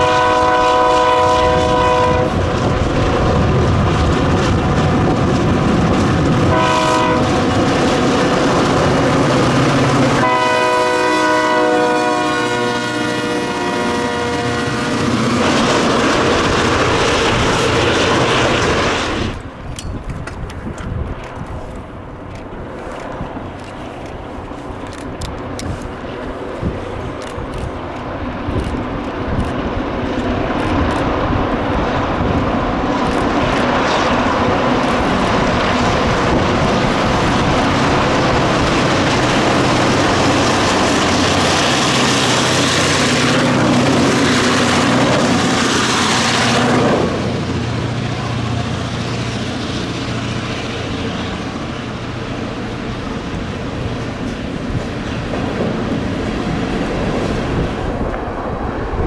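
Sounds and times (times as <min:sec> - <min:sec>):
diesel locomotives barking: 0:00.0 - 0:02.5, 0:06.4 - 0:08.2, 0:09.8 - 0:15.3
hopper cars rumbling by: 0:00.0 - 0:59.0.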